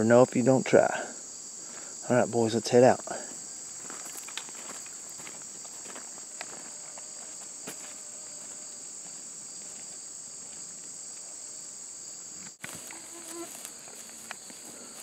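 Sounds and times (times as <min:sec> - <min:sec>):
insects chirping: 0:00.0 - 0:15.0
footsteps on gravel: 0:03.7 - 0:11.2, 0:12.6 - 0:15.0.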